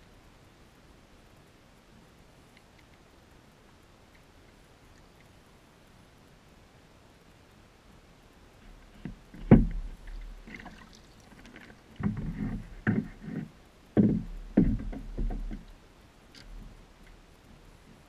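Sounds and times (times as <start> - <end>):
knocks on plastic kayak: 9.4 - 9.9, 14.0 - 15.7.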